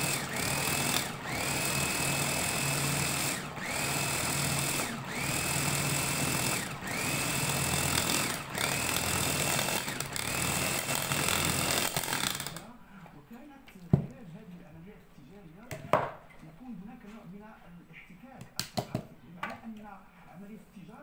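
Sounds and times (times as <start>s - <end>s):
electric food chopper whining: 0.0s - 12.6s.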